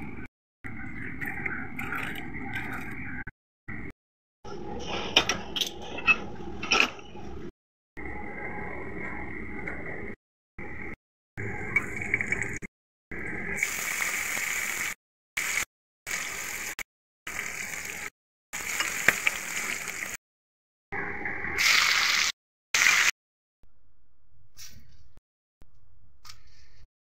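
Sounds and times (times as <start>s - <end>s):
food sizzling in hot oil: 13.6s - 20.2s, 21.6s - 23.1s.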